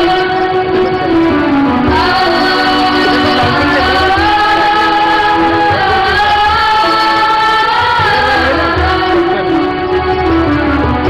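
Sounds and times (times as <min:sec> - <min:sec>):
children singing in chorus: 0:01.9 - 0:09.2.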